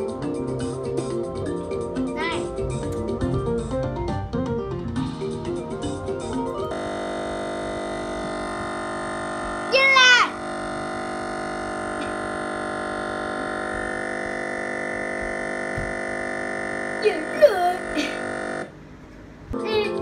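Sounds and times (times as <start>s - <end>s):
looping buzzing music chord: 5.1s - 18.8s.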